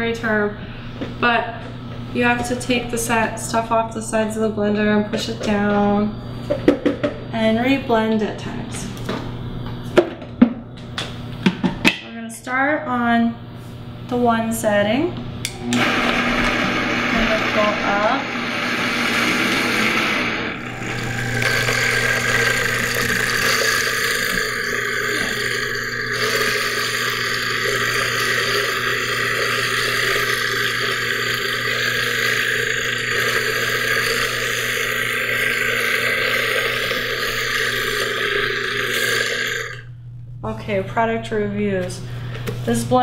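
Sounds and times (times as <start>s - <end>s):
blender running: 15.5s - 39.9s.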